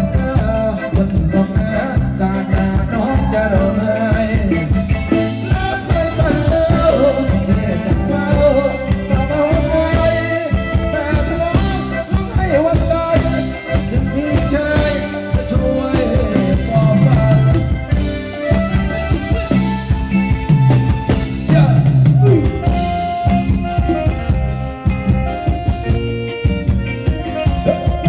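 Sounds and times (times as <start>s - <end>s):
person singing: 0.0s - 18.0s, 21.4s - 23.3s, 27.0s - 28.0s
electric guitars: 0.0s - 28.0s
keyboard: 0.0s - 28.0s
steady beat: 0.0s - 28.0s.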